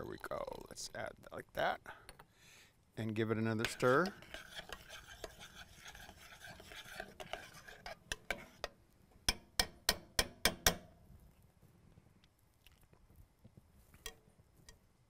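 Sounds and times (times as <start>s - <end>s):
spoon stirring thick sauce: 3.2s - 10.0s.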